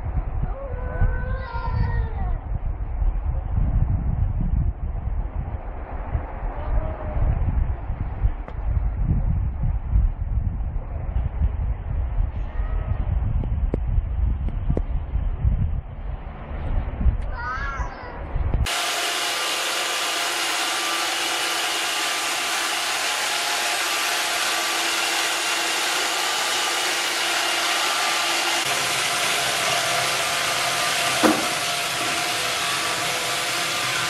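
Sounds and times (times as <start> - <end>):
robot vacuum cleaner whirring: 18.7 - 34.0.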